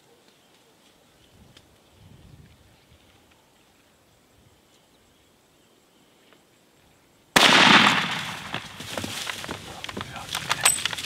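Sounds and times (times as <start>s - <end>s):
bird and insect calls: 0.0s - 11.0s
rifle shot echoing: 7.4s - 9.0s.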